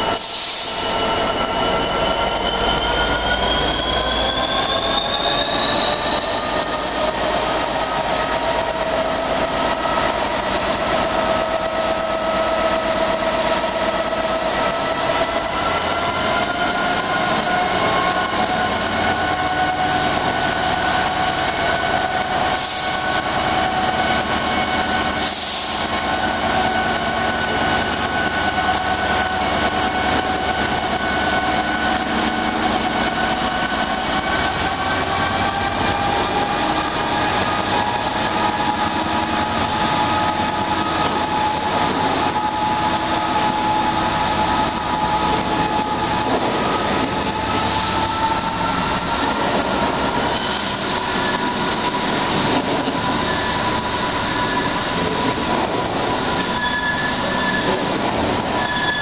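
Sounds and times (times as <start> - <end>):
diesel locomotive engine whine: 0.0 - 59.0.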